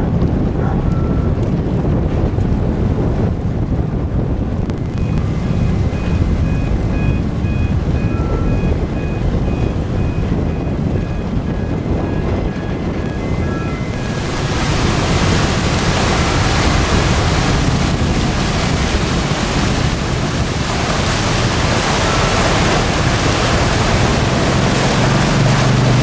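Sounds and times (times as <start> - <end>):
churning water: 0.0 - 26.0
ship engines rumbling: 0.0 - 26.0
wind buffeting microphone: 0.0 - 26.0
short high beeps: 4.6 - 14.8.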